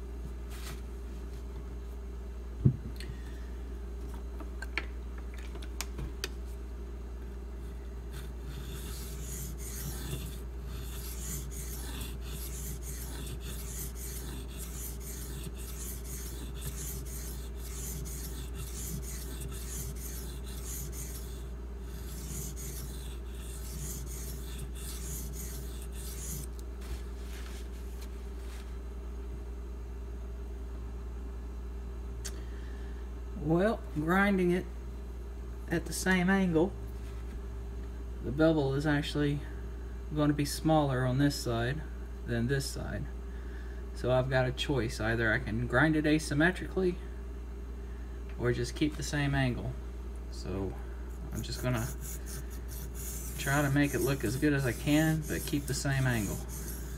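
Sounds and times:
low steady hum: 0:00.0 - 0:56.9
blade scraping on whetstone: 0:08.1 - 0:26.6, 0:51.3 - 0:56.9.

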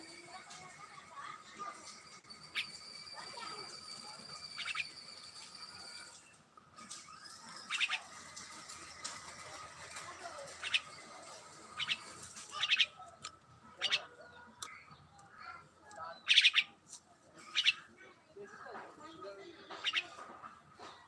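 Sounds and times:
thin high tone: 0:00.0 - 0:12.7
bird giving harsh raspy calls: 0:02.4 - 0:02.9, 0:04.4 - 0:05.0, 0:07.2 - 0:08.3, 0:10.5 - 0:11.1, 0:11.7 - 0:13.1, 0:13.8 - 0:14.9, 0:16.2 - 0:16.8, 0:17.4 - 0:17.9, 0:19.7 - 0:20.2.

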